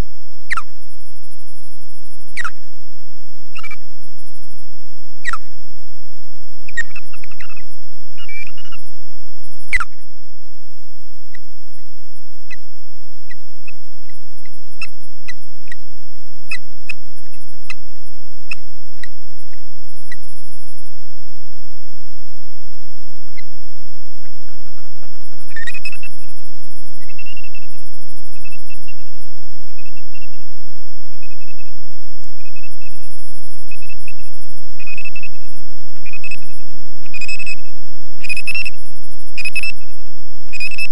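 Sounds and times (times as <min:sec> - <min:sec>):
steady hum and hiss: 0:00.0 - 0:40.8
thin high whine: 0:00.0 - 0:40.9
bird sharp chirps: 0:00.5 - 0:00.7, 0:02.4 - 0:02.6, 0:05.2 - 0:05.5
bird high piping calls: 0:02.4 - 0:02.6.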